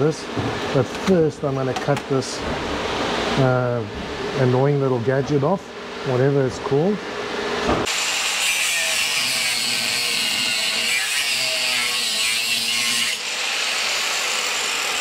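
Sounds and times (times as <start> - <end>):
angle grinder cutting metal: 7.8 - 15.0.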